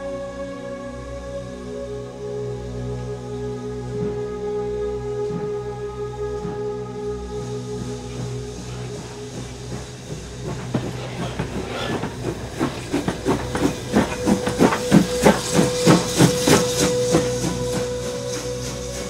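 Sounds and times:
steam locomotive chuffing: 7.2 - 19.0.

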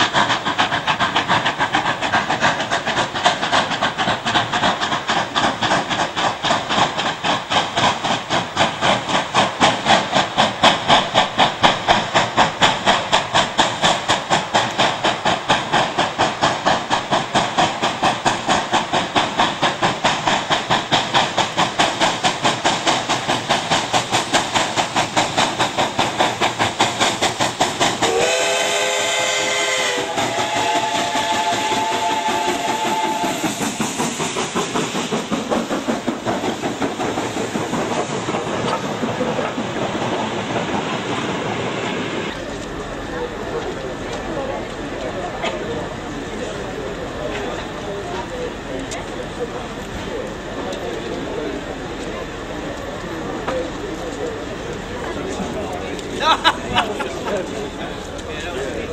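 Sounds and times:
steam locomotive exhaust chuffs: 0.0 - 58.9
steam whistle: 28.0 - 33.8
higher steam whistle tone: 28.0 - 34.2.

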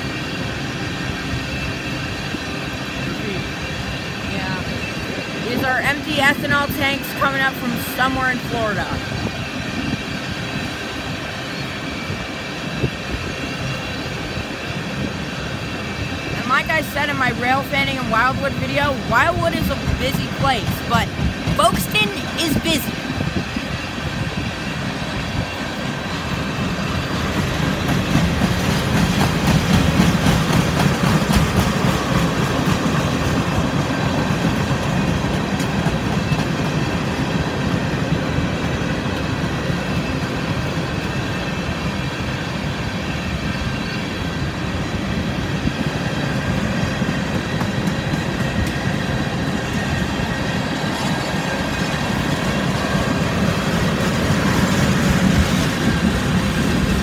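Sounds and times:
freight train rumbling past: 0.0 - 57.0
wheels clacking over rail joints: 26.5 - 40.3.

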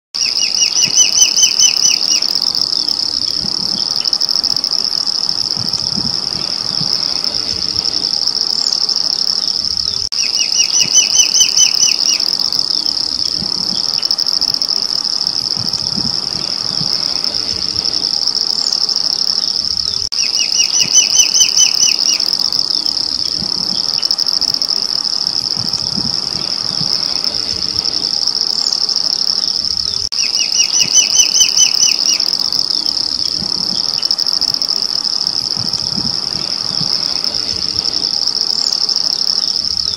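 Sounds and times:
bird whistled call: 0.2 - 4.2, 9.8 - 14.2, 19.9 - 24.2, 29.9 - 34.4
high insect drone: 0.2 - 39.9.

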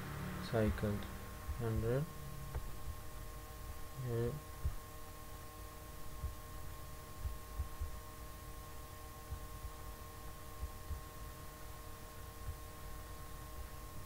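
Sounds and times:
low rumble: 0.0 - 4.9
faint electrical hum: 0.0 - 14.0
soft low thumps: 1.0 - 5.2, 6.0 - 8.2, 9.2 - 11.2.

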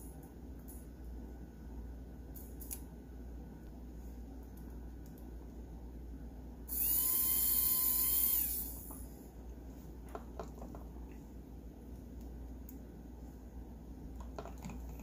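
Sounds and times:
toy car motor whining: 6.7 - 8.8.

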